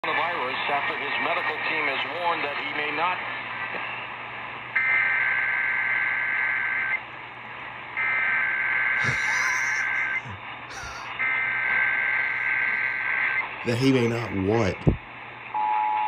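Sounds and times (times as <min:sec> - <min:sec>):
two-tone digital data squawk: 0:09.0 - 0:13.4.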